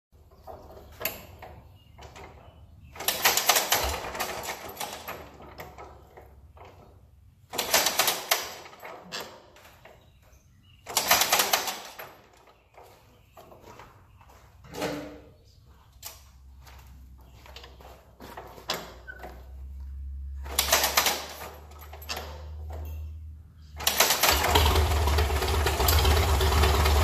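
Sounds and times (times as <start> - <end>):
engine clattering while hand-cranked: 23.8 - 27.0.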